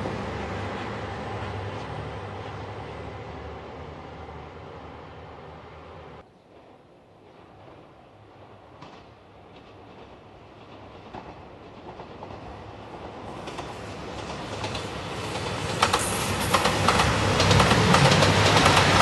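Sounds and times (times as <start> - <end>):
diesel train rumble passing: 0.0 - 19.0
train wheels clacking on rail joints: 8.8 - 19.0.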